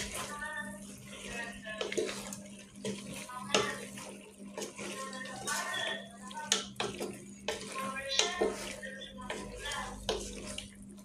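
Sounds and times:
hand squelching wet food: 0.0 - 11.0.

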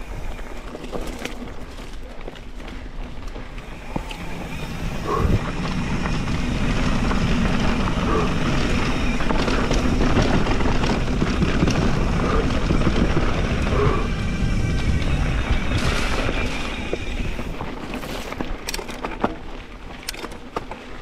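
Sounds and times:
bike rattling over rough ground: 0.0 - 21.0
bike tyre roar on dirt: 0.0 - 21.0
wind buffeting microphone: 2.9 - 18.8.

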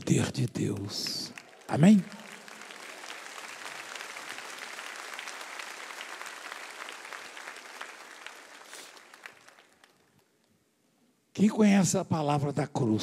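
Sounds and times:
crowd applauding: 0.0 - 10.3.

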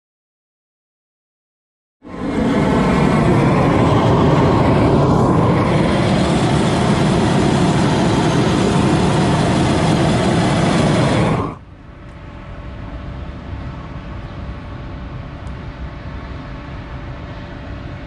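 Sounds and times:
gas torch flame rushing: 2.0 - 11.6.

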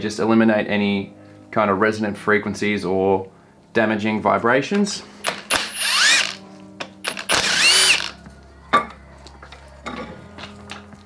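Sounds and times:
power tool motor whining: 5.2 - 6.4, 7.0 - 8.2.

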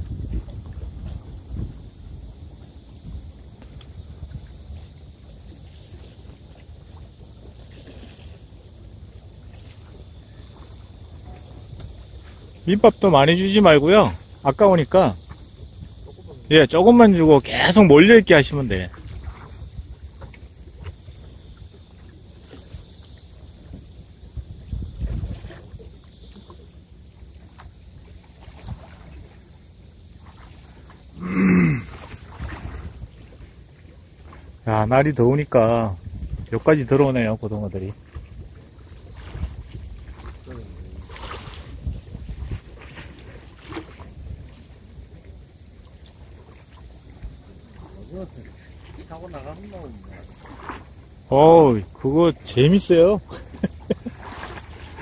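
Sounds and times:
wind rumbling on microphone: 0.0 - 14.5, 15.2 - 29.6, 30.2 - 55.0
faint wash of water: 0.0 - 55.0.

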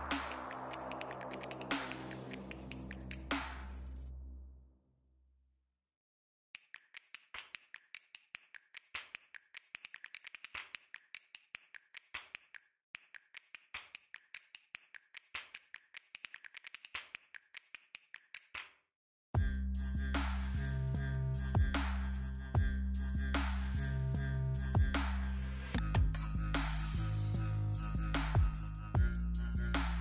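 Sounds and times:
sharp clicks and taps: 6.6 - 18.7.

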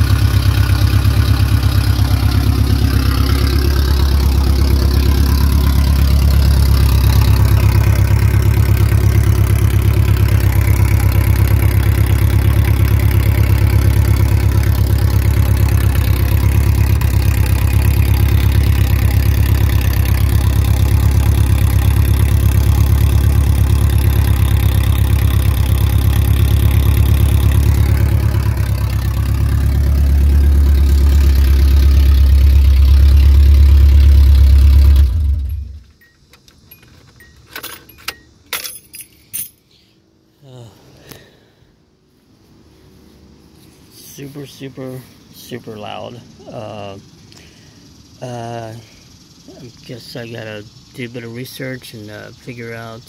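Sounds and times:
loud pickup engine idling: 0.0 - 35.8
faint metal clinks: 35.9 - 39.8.

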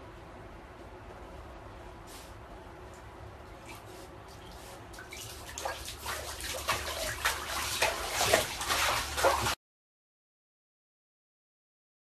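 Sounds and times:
water splashing in bathtub: 3.6 - 9.6.

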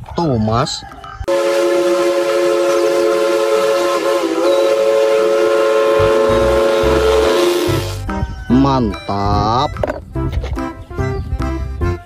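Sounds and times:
steam locomotive whistle: 1.3 - 8.0.

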